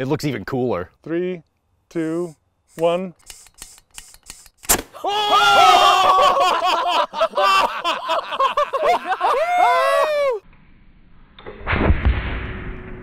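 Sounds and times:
people whooping and cheering: 0:05.0 - 0:10.4
air cannon bang: 0:11.6 - 0:13.0.

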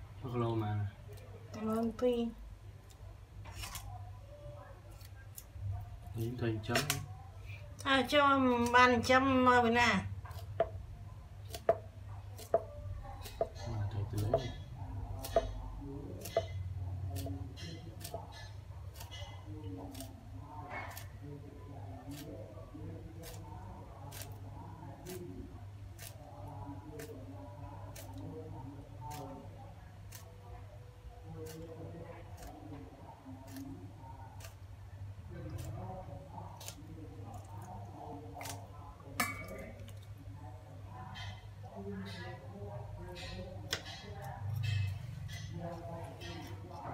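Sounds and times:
knife scraping fish: 0:23.1 - 0:26.2, 0:31.3 - 0:34.7.

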